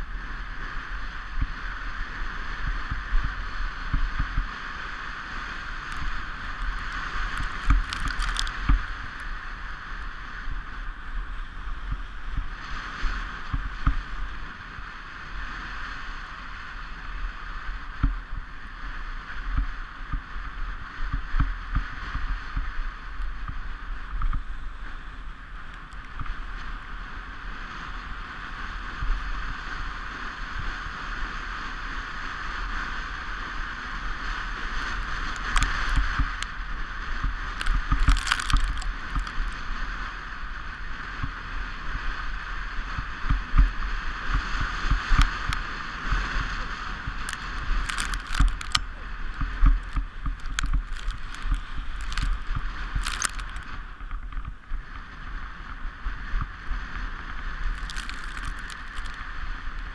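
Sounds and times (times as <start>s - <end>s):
sled knocking and rattling: 37.5s - 39.6s, 47.2s - 54.6s, 57.8s - 59.2s.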